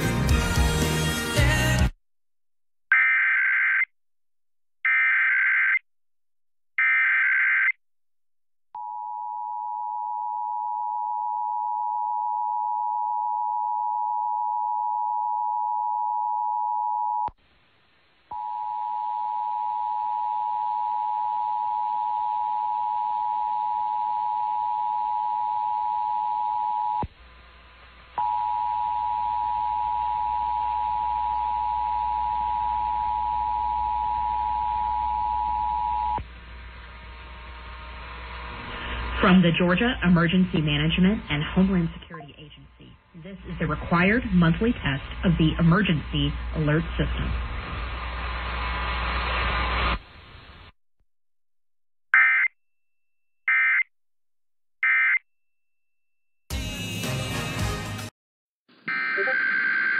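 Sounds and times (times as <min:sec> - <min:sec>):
broadcast hiss: 0:43.2 - 0:50.7.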